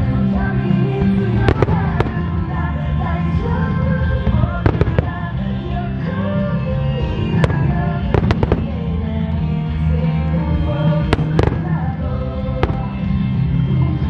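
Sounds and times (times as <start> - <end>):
pop song with singer: 0.0 - 14.0
fireworks bursting with sharp bangs: 0.9 - 2.7, 4.2 - 6.0, 6.9 - 9.2, 10.9 - 13.4.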